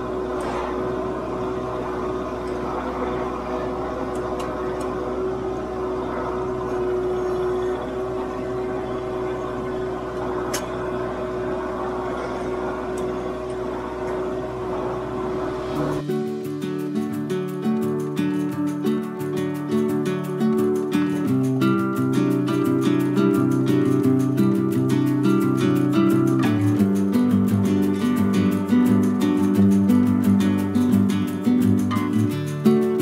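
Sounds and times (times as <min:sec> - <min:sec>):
tractor diesel engine droning: 0:00.0 - 0:17.1.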